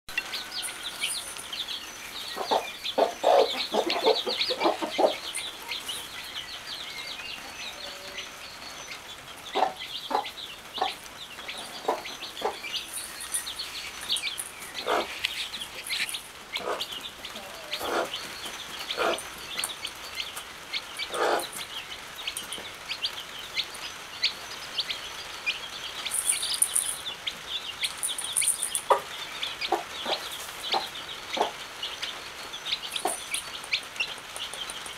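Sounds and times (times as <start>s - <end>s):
hen clucking: 0.1s - 6.4s, 9.4s - 25.0s, 27.9s - 34.9s
chicks peeping: 0.1s - 34.9s.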